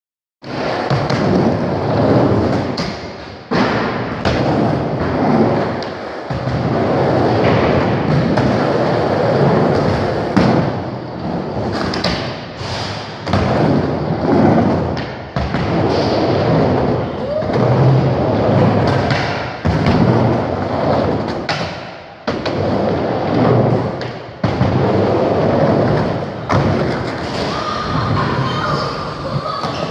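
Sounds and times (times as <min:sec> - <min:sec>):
skateboard thuds and clacks: 0:00.4 - 0:27.5
skateboard wheels rolling on wood: 0:00.4 - 0:29.9.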